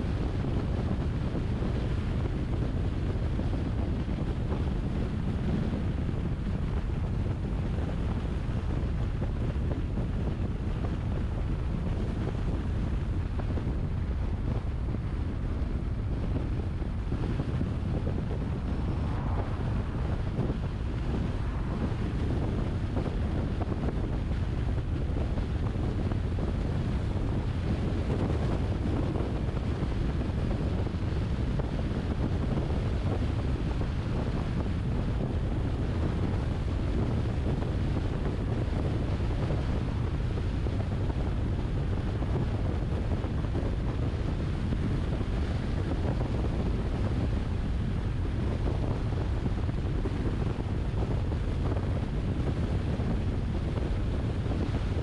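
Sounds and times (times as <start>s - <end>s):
wind rumble on microphone: 0.0s - 55.0s
car road noise: 11.4s - 28.0s.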